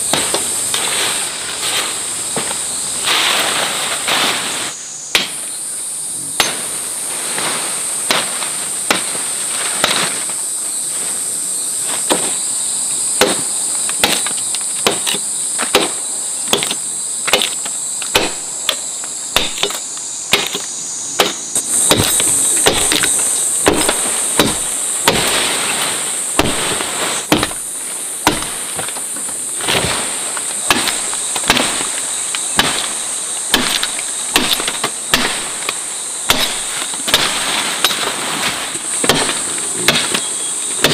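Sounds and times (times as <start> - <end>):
chopping strikes: 0.0 - 0.9, 5.1 - 5.4, 6.4 - 6.7, 8.0 - 10.3, 12.0 - 12.4, 13.2 - 29.0, 29.6 - 40.9
high-pitched insect drone: 0.0 - 40.9.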